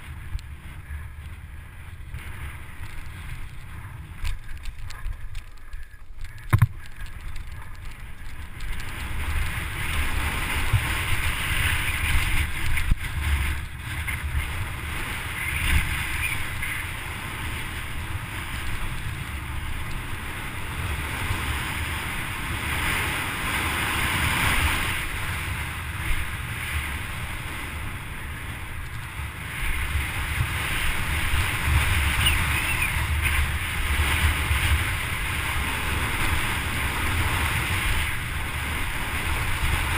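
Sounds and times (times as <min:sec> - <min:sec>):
wind buffeting microphone: 0:00.0 - 0:39.9
tyres rolling over gravel: 0:00.9 - 0:11.3.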